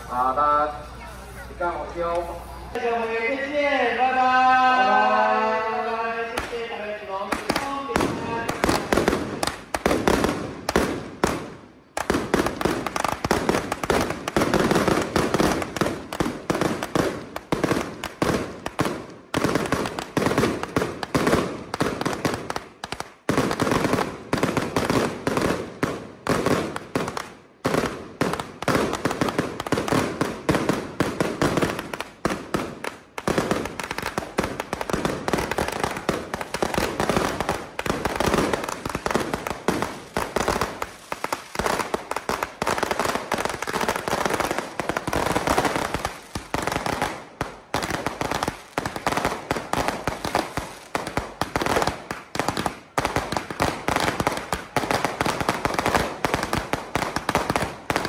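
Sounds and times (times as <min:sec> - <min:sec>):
firecrackers banging: 0:00.0 - 0:58.0.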